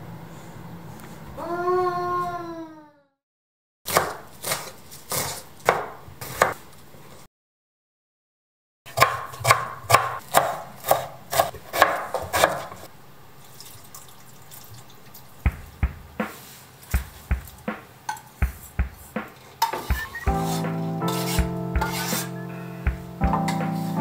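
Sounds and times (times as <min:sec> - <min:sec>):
knife chopping on wooden board: 0:03.9 - 0:06.6, 0:08.9 - 0:12.8, 0:18.4 - 0:22.3.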